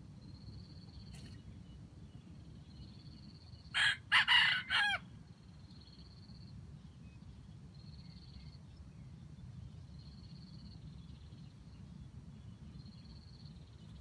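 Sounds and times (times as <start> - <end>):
faint insect trill: 0.0 - 1.4, 2.6 - 3.8, 5.3 - 6.6, 12.8 - 14.0
rooster crowing: 3.7 - 5.1.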